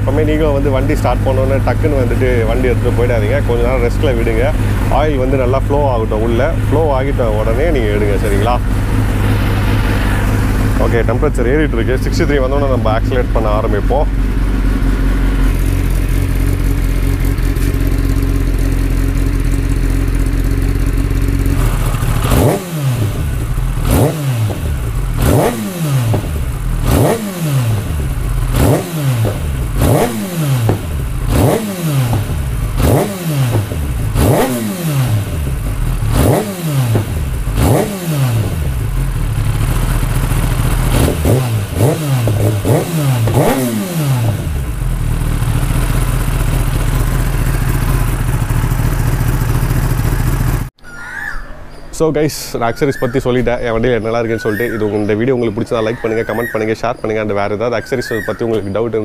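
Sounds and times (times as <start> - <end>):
motorcycle engine idling and revving: 0.0 - 50.8.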